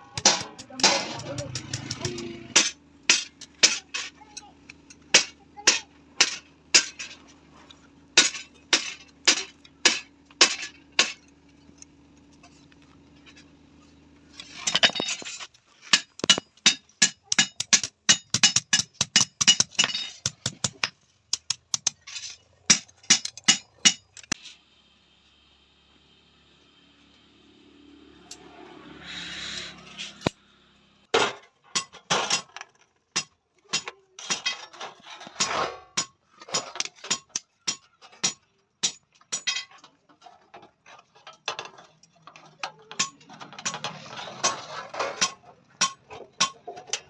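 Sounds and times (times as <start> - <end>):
hammer striking iron on anvil: 0.1 - 4.1, 5.1 - 7.1, 8.2 - 11.2, 15.9 - 22.0, 22.7 - 24.3, 35.4 - 39.7, 45.2 - 47.0.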